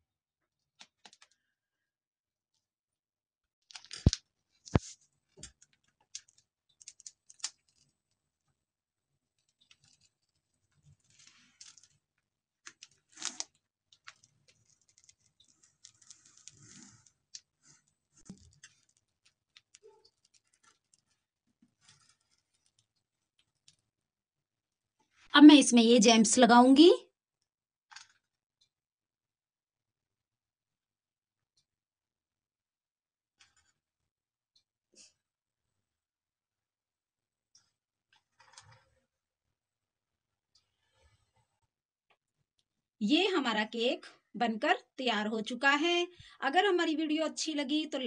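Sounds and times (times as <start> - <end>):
plastic bag crinkling: 9.6 - 12.1, 12.7 - 23.8.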